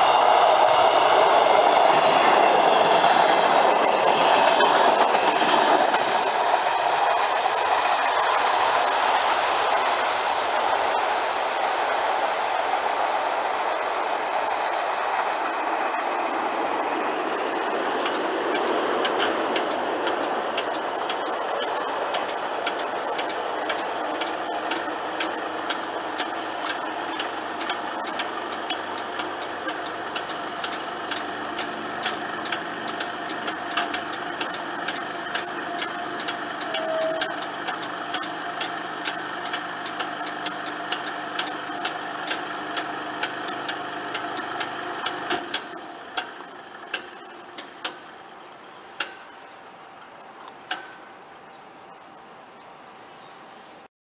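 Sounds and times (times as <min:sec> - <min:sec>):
passing train rumble: 0:00.0 - 0:53.9
barrier sharp ticks: 0:18.0 - 0:48.1.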